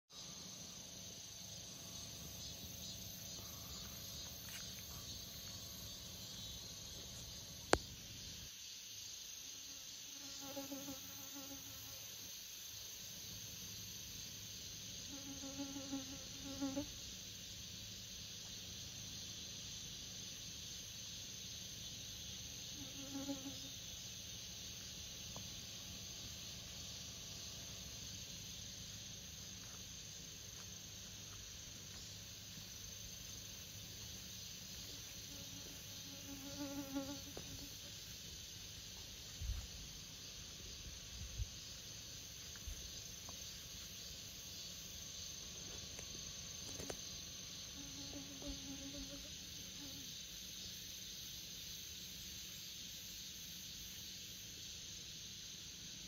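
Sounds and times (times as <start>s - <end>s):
bee buzzing past: 9.7s - 12.0s, 15.1s - 17.0s, 22.8s - 23.8s, 35.2s - 37.9s, 47.6s - 50.1s.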